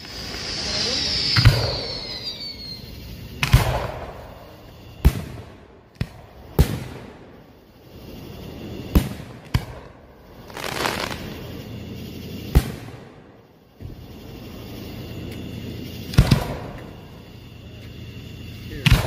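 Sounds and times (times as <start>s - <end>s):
fireworks booming: 0.0s - 17.2s, 18.7s - 19.0s
fireworks crackling hiss: 0.0s - 19.0s.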